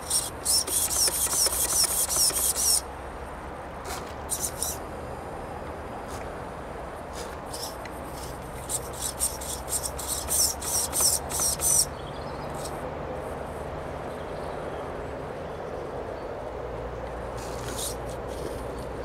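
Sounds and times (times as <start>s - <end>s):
rc car motor whining: 0.0s - 2.9s, 4.3s - 4.8s, 7.5s - 11.9s, 17.4s - 18.6s.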